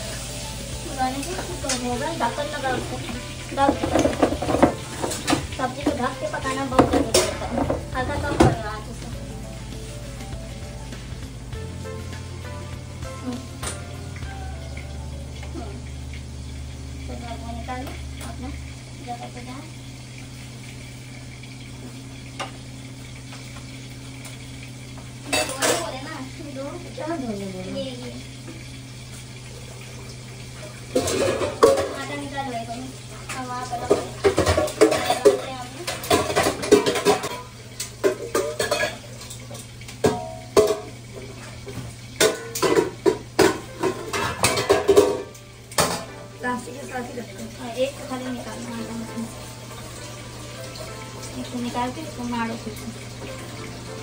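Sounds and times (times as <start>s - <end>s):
metal cookware clattering: 0.6s - 9.2s, 25.2s - 26.3s, 30.9s - 32.5s, 33.2s - 47.4s
metal pots and pans clanking: 1.0s - 9.2s, 13.2s - 15.6s, 25.2s - 26.1s, 30.9s - 32.4s, 33.1s - 46.7s.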